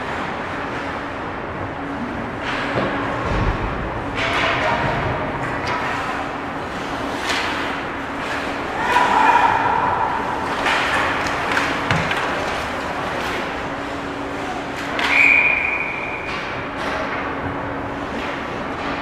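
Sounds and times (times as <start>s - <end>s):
hockey sticks and puck clacking: 4.1s - 19.0s
skates scraping ice: 5.8s - 15.1s.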